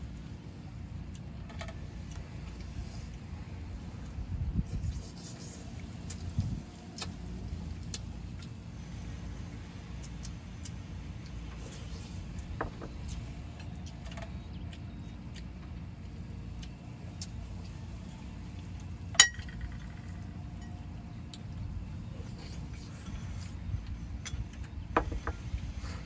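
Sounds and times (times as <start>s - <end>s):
steady low rumble: 0.0s - 26.0s
sharp ringing clink: 19.2s - 19.8s.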